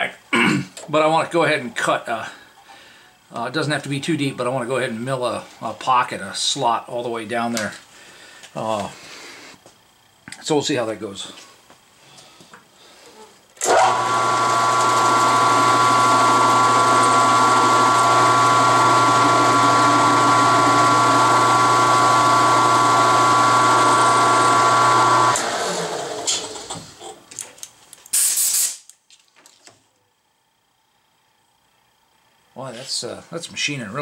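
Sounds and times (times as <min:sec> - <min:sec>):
mill-drill motor hum and whine: 0:13.6 - 0:26.3
end mill cutting metal: 0:13.6 - 0:26.6
short hiss: 0:28.1 - 0:28.9.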